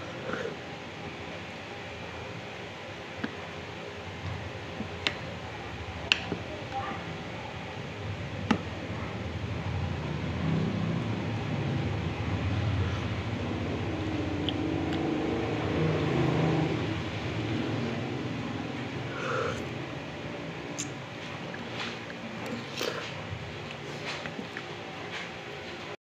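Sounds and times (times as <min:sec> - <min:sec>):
low rumble: 0:09.2 - 0:20.4.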